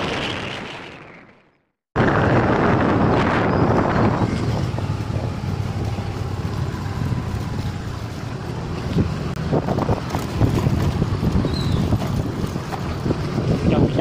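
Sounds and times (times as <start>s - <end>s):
motorcycle engine rumble: 2.0s - 14.0s
wind buffeting microphone: 2.0s - 14.0s.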